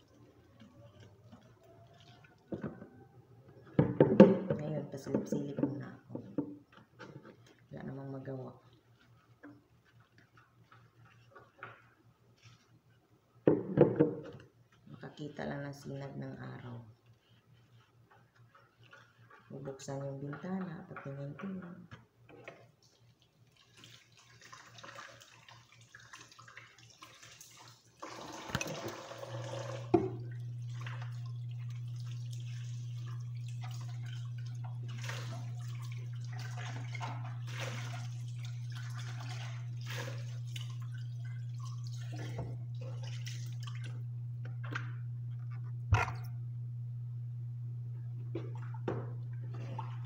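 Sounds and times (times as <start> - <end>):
water running and dripping: 0.0 - 4.4, 22.4 - 45.2
steady low hum: 30.0 - 50.0.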